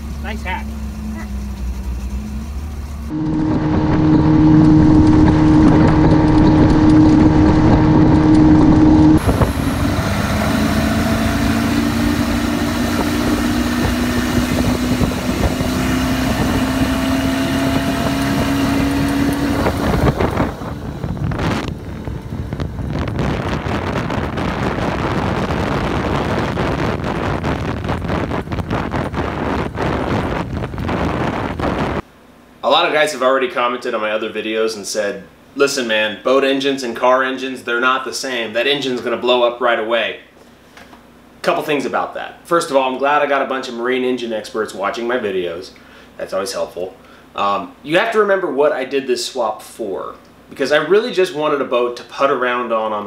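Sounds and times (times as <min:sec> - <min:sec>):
boat engine running: 0:00.0 - 0:32.0
wind buffeting the microphone: 0:03.2 - 0:32.0.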